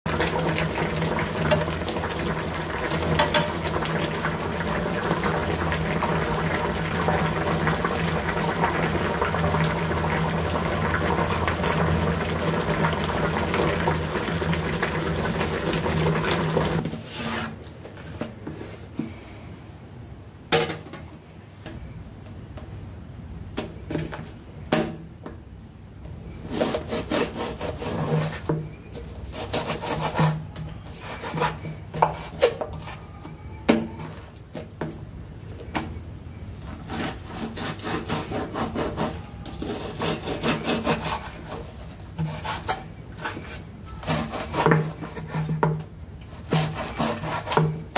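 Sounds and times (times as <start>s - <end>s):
stew bubbling in a pan: 0.1s - 17.4s.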